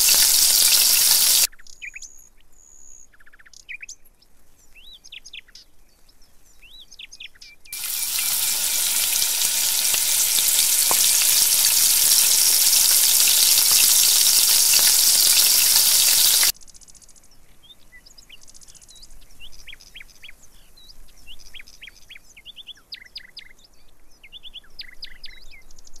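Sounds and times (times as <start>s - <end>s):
birds chirping: 0.0s - 1.5s, 7.8s - 16.5s
oil sizzling while deep-frying: 0.0s - 1.5s, 7.8s - 16.5s.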